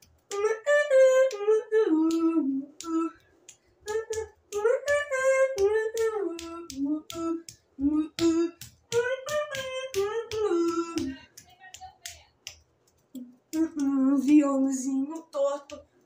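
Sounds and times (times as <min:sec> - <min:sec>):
high voice singing wordless tune: 0:00.0 - 0:12.6, 0:13.2 - 0:15.9
light percussive beat: 0:03.9 - 0:14.4.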